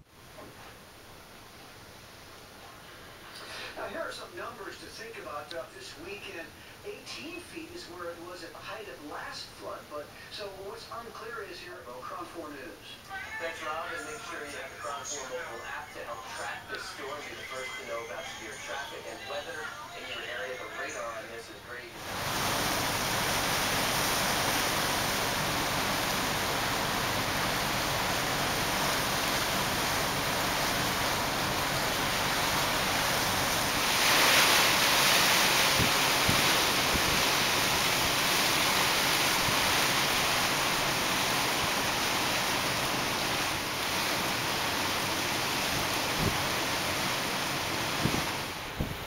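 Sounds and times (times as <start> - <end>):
storm wind through trees: 22.0 - 49.0
wind buffeting microphone: 48.0 - 49.0.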